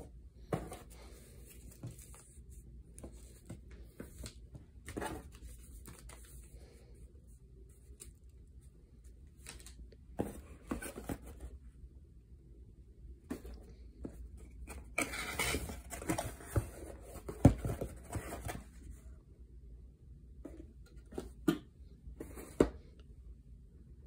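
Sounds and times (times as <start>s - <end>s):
cardboard box rustling and knocks: 0.4s - 1.0s, 14.8s - 18.7s.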